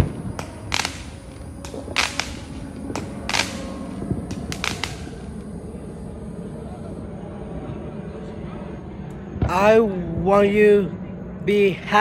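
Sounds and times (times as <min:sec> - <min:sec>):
fireworks bangs and cracks: 0:00.0 - 0:05.4.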